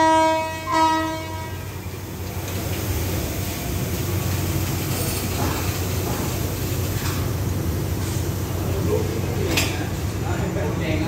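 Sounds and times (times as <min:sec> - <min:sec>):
train horn chord: 0:00.0 - 0:01.9
diesel locomotive engine idling: 0:00.0 - 0:11.0.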